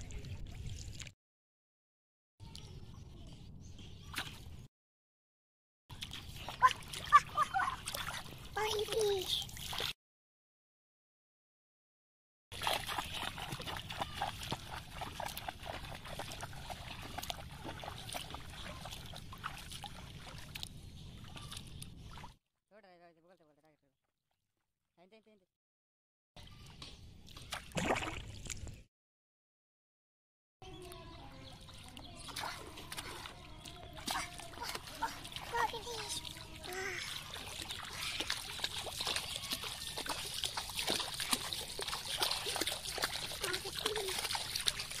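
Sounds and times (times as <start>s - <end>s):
water splashing from wading: 5.9s - 10.0s, 12.5s - 22.4s, 27.3s - 28.7s, 31.5s - 45.0s.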